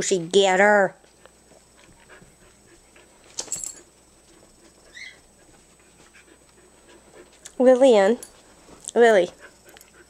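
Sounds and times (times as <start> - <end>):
dog panting: 1.1 - 3.4, 4.2 - 7.7, 8.3 - 10.0
dog whimpering: 4.9 - 5.3.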